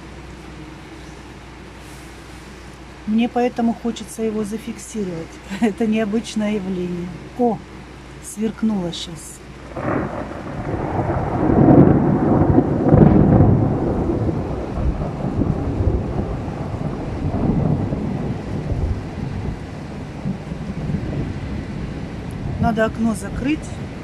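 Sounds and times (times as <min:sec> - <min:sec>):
steady rain: 0:00.0 - 0:24.0
thunder rumbling: 0:09.4 - 0:24.0.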